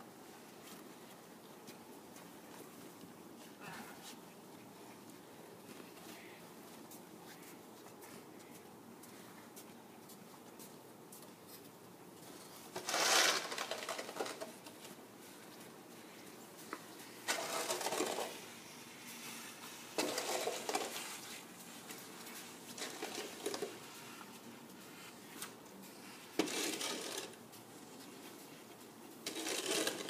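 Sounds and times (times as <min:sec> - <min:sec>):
shovel scraping snowy pavement: 0:12.7 - 0:14.5, 0:17.2 - 0:18.5, 0:19.9 - 0:21.4, 0:22.7 - 0:23.8, 0:26.3 - 0:27.4, 0:29.2 - 0:30.0.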